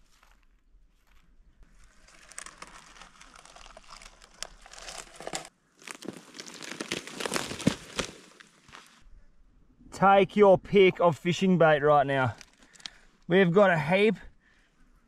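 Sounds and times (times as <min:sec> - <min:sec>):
dry leaves and wood crunching: 0:00.0 - 0:09.0, 0:12.3 - 0:13.1.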